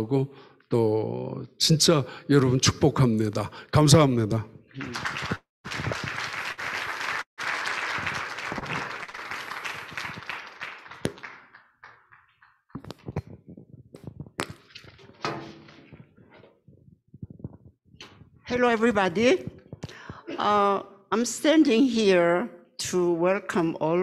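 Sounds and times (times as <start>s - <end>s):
audience applauding: 4.8s - 13.1s.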